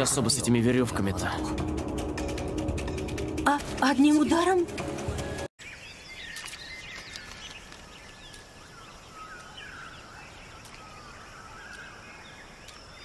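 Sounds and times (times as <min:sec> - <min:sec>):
birds chirping and whistling: 0:05.3 - 0:13.0.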